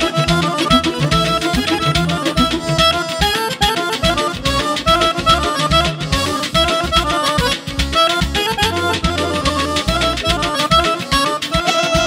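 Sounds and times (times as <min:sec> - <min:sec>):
button accordion folk-dance melody: 0:00.0 - 0:12.0
drum accompaniment: 0:00.0 - 0:12.0.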